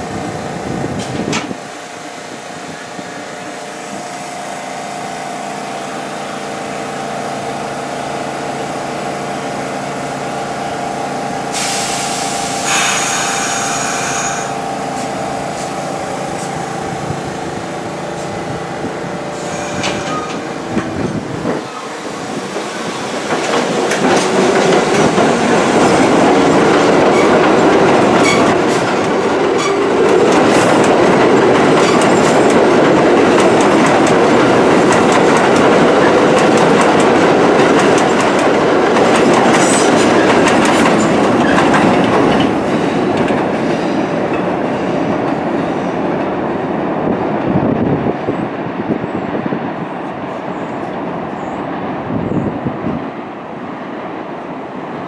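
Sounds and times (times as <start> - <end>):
train wheels clacking on rails: 11.2 - 46.5.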